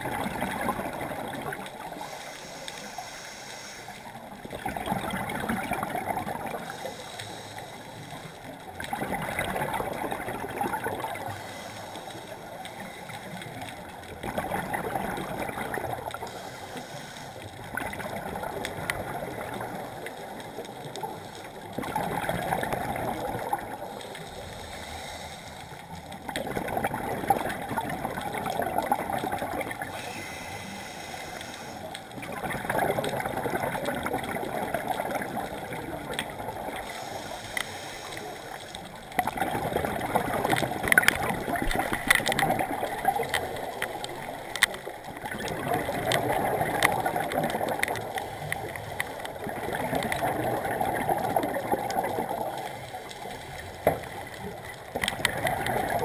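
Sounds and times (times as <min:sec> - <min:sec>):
gurgling exhaust bubbles: 0:00.0 - 0:02.0, 0:04.4 - 0:06.7, 0:08.6 - 0:11.4, 0:14.1 - 0:16.3, 0:17.6 - 0:23.9, 0:26.2 - 0:30.0, 0:32.2 - 0:37.0, 0:39.0 - 0:53.0, 0:54.4 - 0:56.0
underwater regulator breathing: 0:01.6 - 0:04.4, 0:06.3 - 0:08.4, 0:11.1 - 0:13.8, 0:16.0 - 0:17.7, 0:23.8 - 0:26.4, 0:29.8 - 0:32.2, 0:35.5 - 0:39.0.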